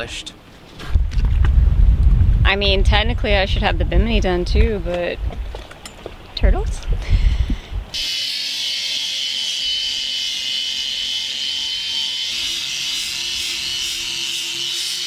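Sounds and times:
power sander whining: 7.5s - 15.0s.

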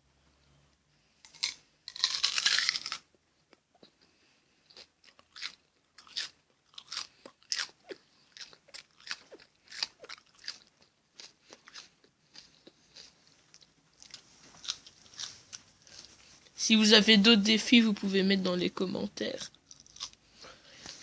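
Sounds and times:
person chewing raw onion: 1.2s - 16.4s, 19.4s - 21.0s.

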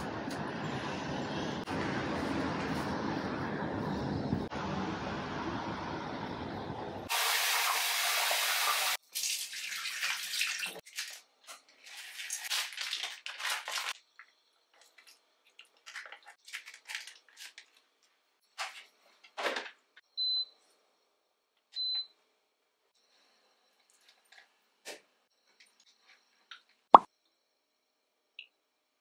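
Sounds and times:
street traffic: 0.0s - 7.1s
water running from a tap: 7.1s - 11.2s
splashes and small clatters: 9.0s - 17.8s.

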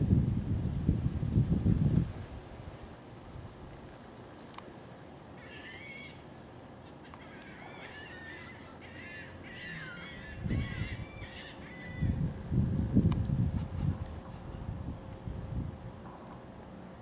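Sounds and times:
wind rumble on microphone: 0.0s - 4.0s, 9.8s - 17.0s
gulls calling: 5.4s - 12.2s.

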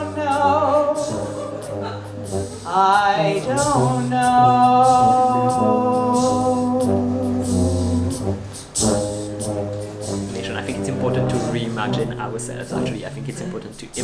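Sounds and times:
person singing: 0.0s - 8.5s.

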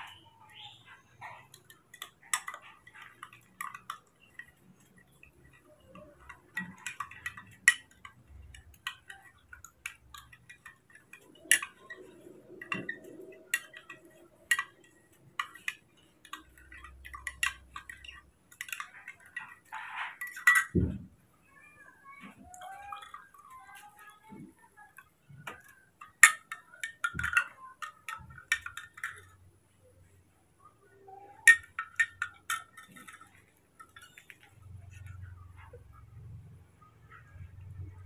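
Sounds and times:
spoon clinking against glass: 0.0s - 21.0s, 31.1s - 35.8s.

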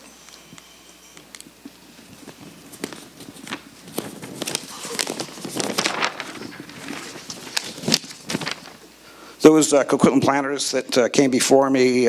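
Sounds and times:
paper rustling and crackling: 1.2s - 8.9s.

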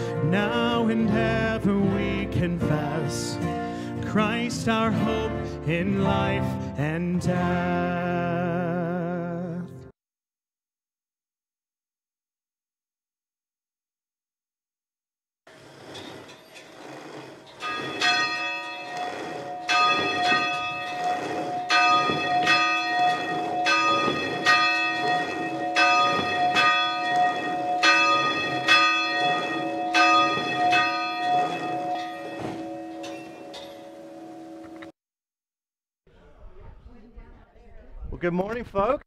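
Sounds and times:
church bell tolling: 17.6s - 34.9s.

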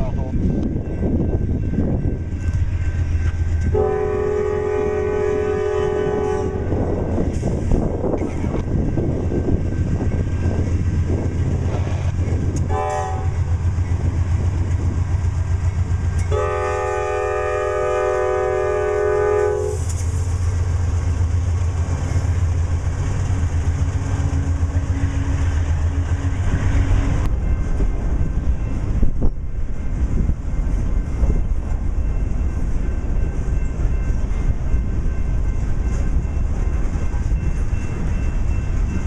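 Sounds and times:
diesel locomotives rumbling: 0.0s - 39.0s
train horn: 3.7s - 6.8s, 12.7s - 13.5s, 16.3s - 19.9s.

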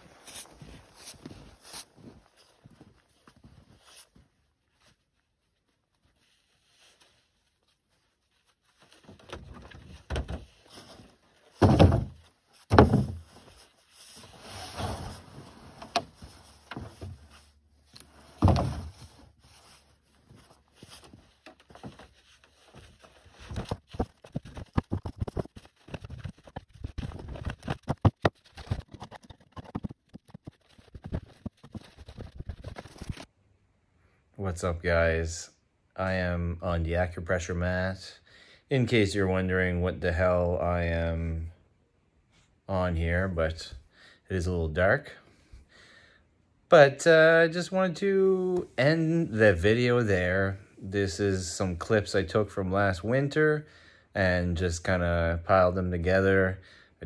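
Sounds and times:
quick scuffs and crunches: 0.0s - 4.3s, 16.1s - 33.3s
rustling: 0.0s - 33.3s.

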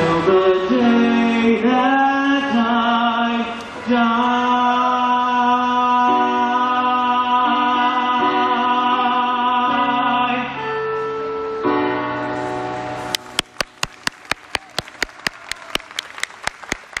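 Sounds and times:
man singing: 0.0s - 11.0s
song backing music chords: 0.0s - 14.8s
close hand clapping: 13.1s - 17.0s
faint applause: 13.2s - 17.0s.

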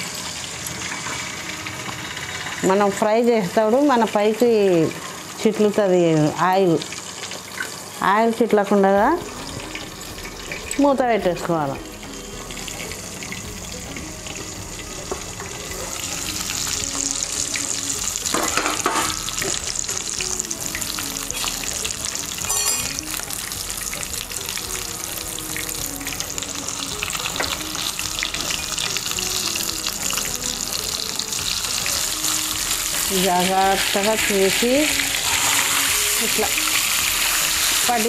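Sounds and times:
fish sizzling in hot oil: 0.0s - 38.0s.

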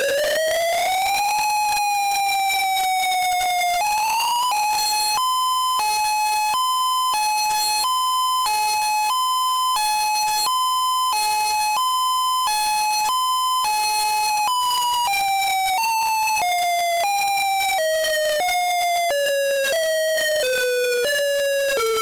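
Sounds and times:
two-tone siren: 0.0s - 22.0s.

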